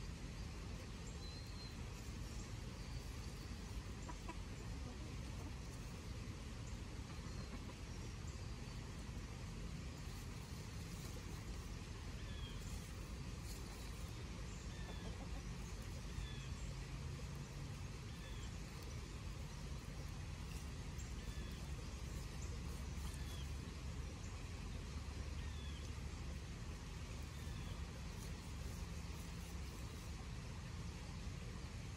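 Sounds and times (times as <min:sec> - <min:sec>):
steady low rumble: 0:00.0 - 0:31.9
bird chirping: 0:00.8 - 0:04.3, 0:12.2 - 0:26.0.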